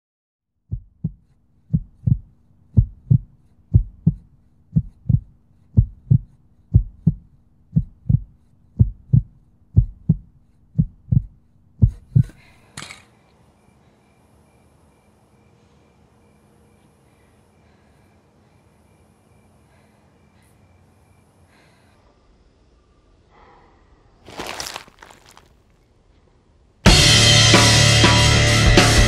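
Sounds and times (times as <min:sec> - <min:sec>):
heartbeat thumps: 0:00.7 - 0:12.5.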